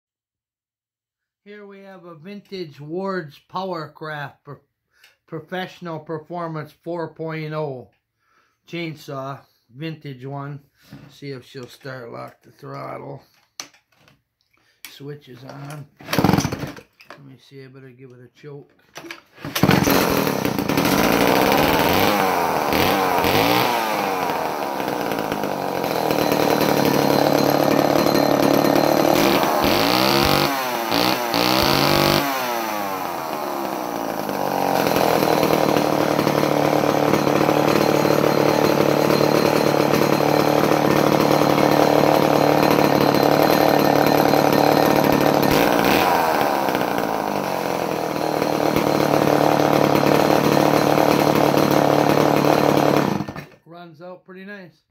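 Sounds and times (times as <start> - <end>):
chainsaw revving and running: 16.0 - 16.7, 19.4 - 53.6.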